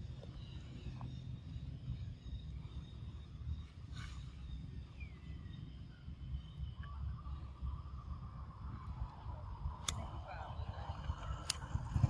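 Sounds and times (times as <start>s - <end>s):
faint high chirps: 0.0s - 9.4s
steady low rumble: 0.0s - 12.0s.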